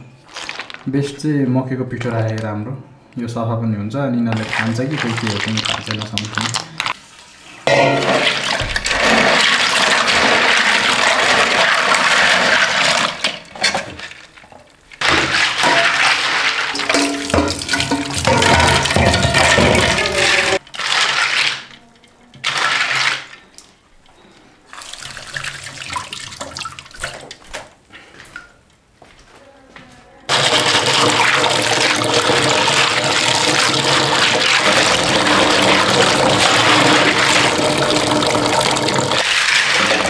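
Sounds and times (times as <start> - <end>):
water splashing: 4.3 - 7.0, 7.7 - 21.6, 30.3 - 40.0
tap water running into metal bowl: 15.2 - 21.2, 30.3 - 40.0.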